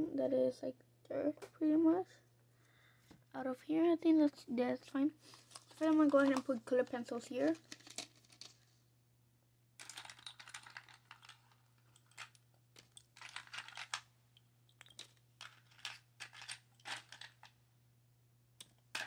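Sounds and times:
colored pencils clattering: 5.3 - 8.6, 9.8 - 14.1, 14.7 - 17.6.

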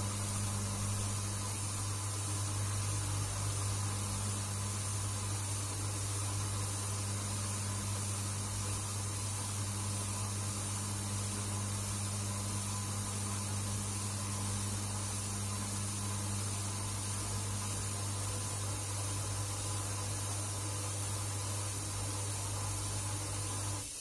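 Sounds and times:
washing machine running: 0.0 - 24.0.

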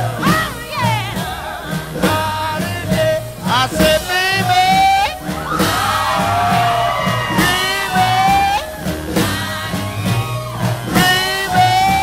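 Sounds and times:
steady bass beat: 0.0 - 12.0
person singing: 10.9 - 12.0.

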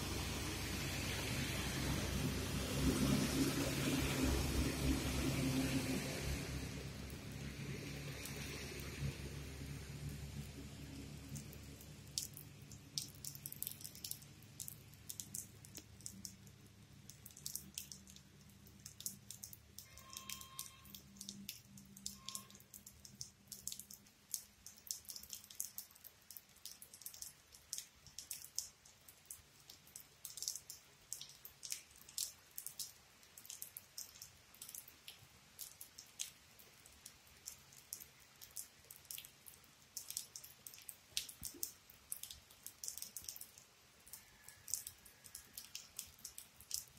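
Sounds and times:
rainwater dripping: 0.0 - 46.9
brief high tones: 19.9 - 20.9.

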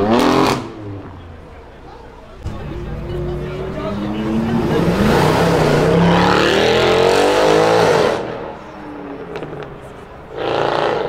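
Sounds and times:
car engine accelerating hard: 2.4 - 11.0.

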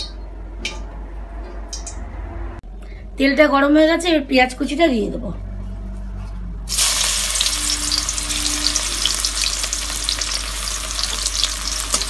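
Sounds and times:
fine crackles of frying: 6.7 - 12.0
onion sizzling in hot oil: 6.7 - 12.0.

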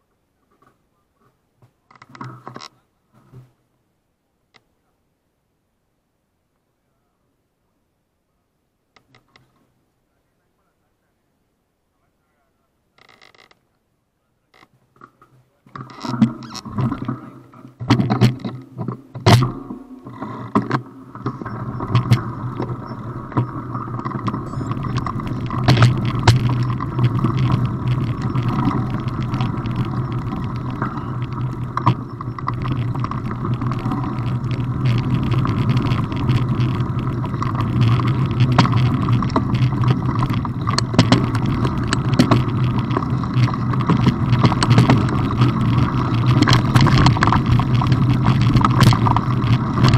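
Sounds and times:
bike tyres rumbling on gravel: 15.8 - 49.9.

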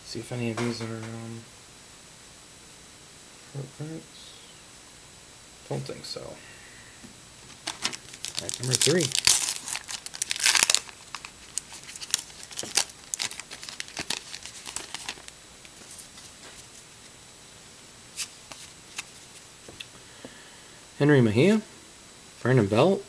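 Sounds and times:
plastic wrapper tearing and crinkling: 7.5 - 16.2.

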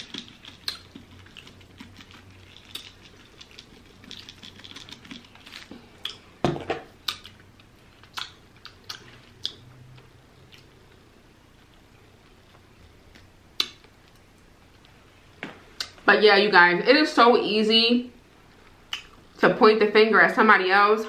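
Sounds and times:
wet mouth clicks: 0.0 - 6.2, 7.0 - 7.4, 8.1 - 9.7, 13.6 - 13.9, 18.9 - 19.2.

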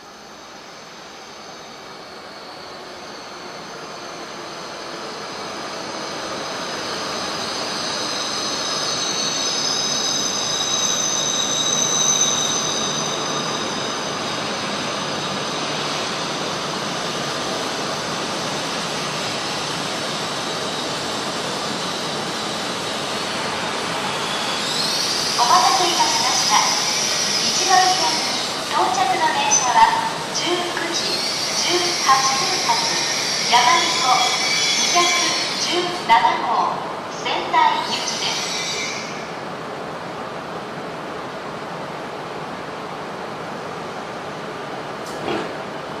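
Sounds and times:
train pulling into station: 0.0 - 46.0
wheel and brake squeal: 6.8 - 15.7, 32.8 - 35.6, 38.0 - 39.3.

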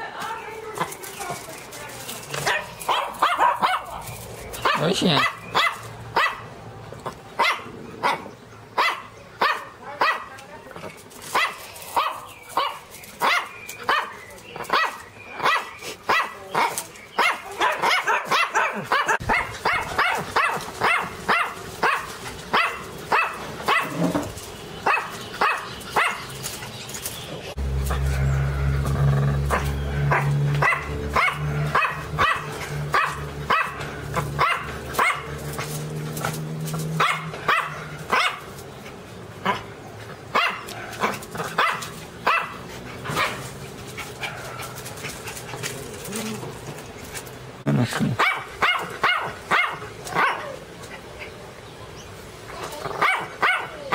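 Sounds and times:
small dog barking: 2.4 - 4.0, 4.6 - 6.5, 7.4 - 10.4, 11.3 - 24.0, 24.8 - 26.3, 29.5 - 35.7, 37.0 - 38.5, 40.3 - 43.5, 48.2 - 50.6, 52.9 - 53.9
steady low hum: 27.5 - 47.9.

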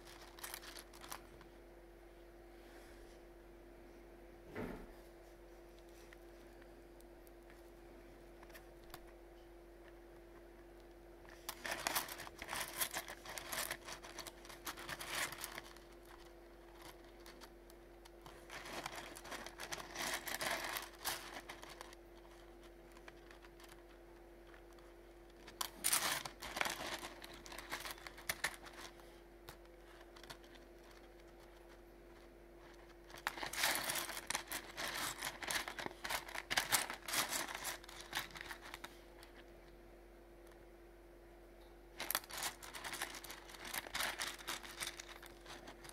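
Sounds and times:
plastic crinkling: 0.0 - 1.5, 10.8 - 39.6, 42.0 - 45.9
faint hum: 0.0 - 45.9.

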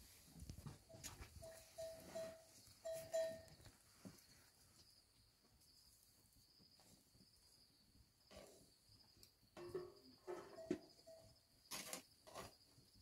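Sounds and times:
crickets chirping: 0.6 - 13.0.

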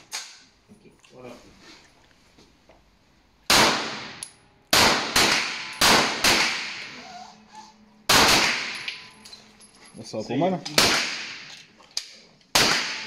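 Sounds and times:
pistol shots: 3.5 - 6.9, 8.1 - 9.0, 10.7 - 11.5, 12.5 - 13.0.

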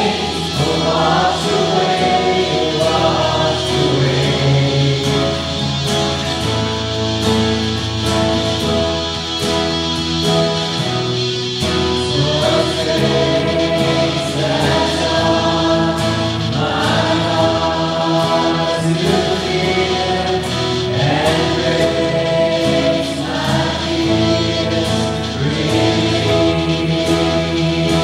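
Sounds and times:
women singing together: 0.0 - 5.6, 12.0 - 28.0
acoustic and electric guitar: 0.0 - 28.0.

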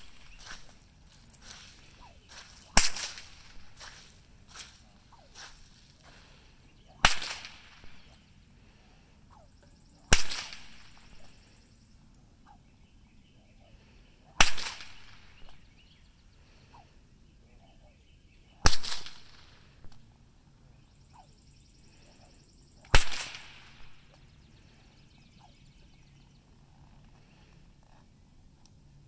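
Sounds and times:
rope slapping with a crack: 2.5 - 5.8, 7.0 - 8.1
smaller rope slap: 2.7 - 3.9, 7.0 - 8.1.

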